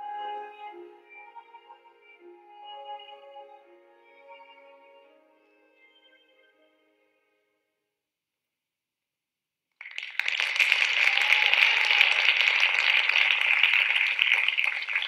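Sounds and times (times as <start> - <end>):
audience applause: 9.8 - 15.0.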